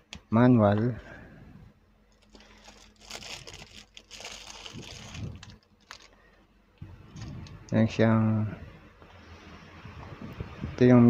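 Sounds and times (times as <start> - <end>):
plastic bag crinkling: 2.1 - 6.4.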